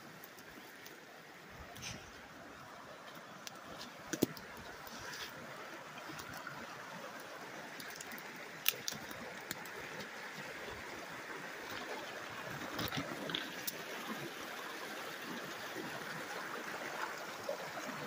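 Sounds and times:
river running over rocks: 0.0 - 18.0
twigs snapping underfoot: 3.4 - 5.2, 7.8 - 10.1.

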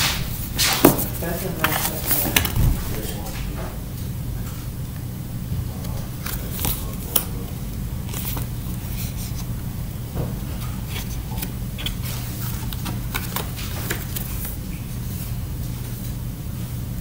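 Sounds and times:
steady low hum: 0.0 - 17.0
packaging crackling: 6.1 - 9.5.

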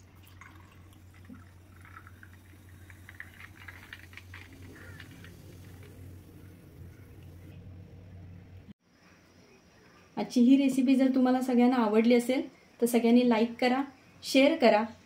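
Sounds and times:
soda water pouring over ice: 0.0 - 7.3
bubbles fizzing and crackling: 0.0 - 7.5
low steady hum: 0.0 - 9.2.

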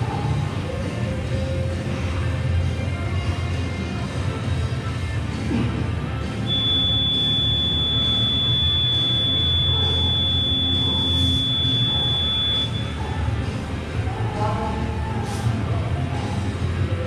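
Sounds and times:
timer long high beep: 6.5 - 13.0.

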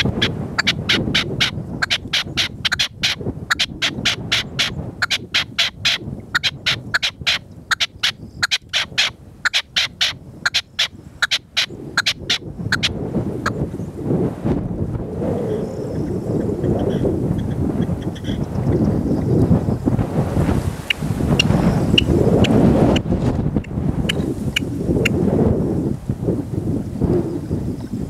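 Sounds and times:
partridges calling: 0.0 - 12.9, 16.0 - 19.3
wind buffeting microphone: 0.0 - 28.0.

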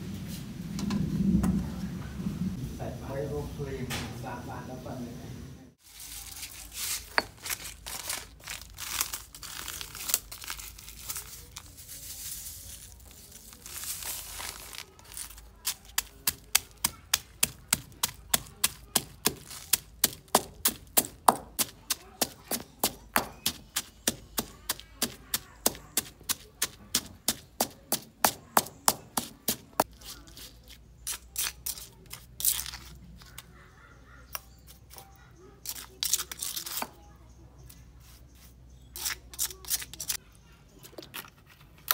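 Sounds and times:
stone pestle pounding in mortar: 15.6 - 29.9.

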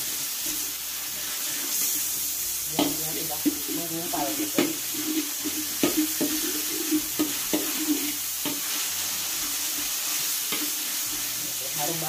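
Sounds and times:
meat sizzling in oil: 0.0 - 12.0
spatula scraping and clacking on pan: 2.7 - 11.4.

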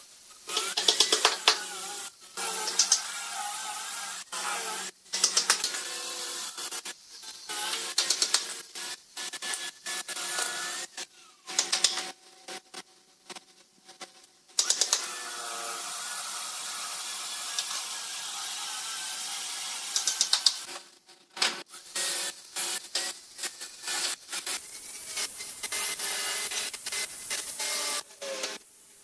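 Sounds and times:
boards clicking on concrete floor: 11.5 - 12.1, 20.0 - 20.6
steady hiss: 21.8 - 29.0.

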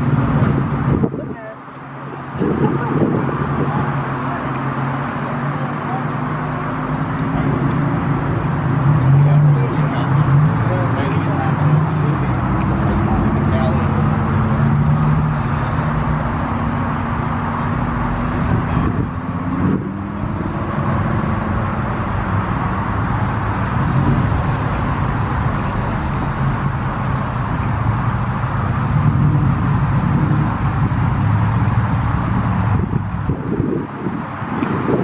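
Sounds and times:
outdoor noise: 0.0 - 35.0
car engine idling: 20.1 - 34.4.

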